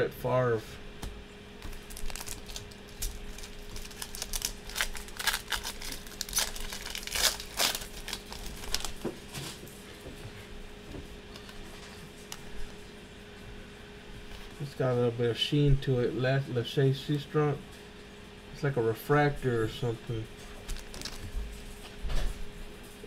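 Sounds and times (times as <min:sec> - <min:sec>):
foil pack crinkling and ripping: 0:01.6 - 0:09.6, 0:20.5 - 0:21.8.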